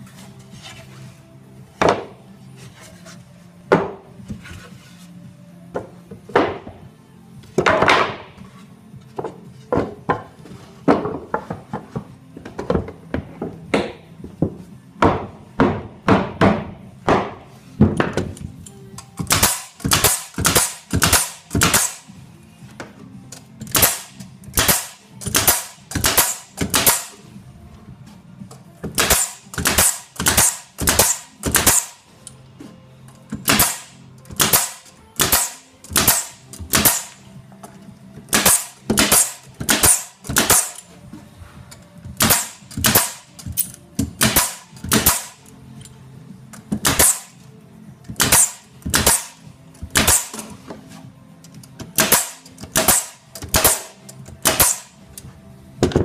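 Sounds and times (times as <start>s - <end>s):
pneumatic nail gun firing: 19.2s - 22.1s, 23.6s - 27.2s, 28.9s - 32.0s, 33.4s - 37.2s, 38.3s - 40.8s, 42.2s - 45.4s, 46.8s - 47.4s, 48.2s - 50.5s, 52.0s - 55.0s.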